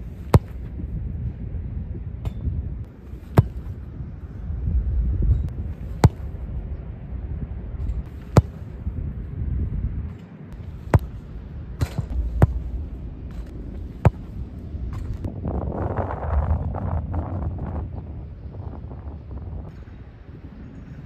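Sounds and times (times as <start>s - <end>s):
wind rumble on microphone: 0.0s - 21.0s
football kicks thudding: 0.2s - 0.8s, 3.2s - 3.8s, 5.3s - 6.4s, 7.8s - 8.8s, 10.6s - 15.3s.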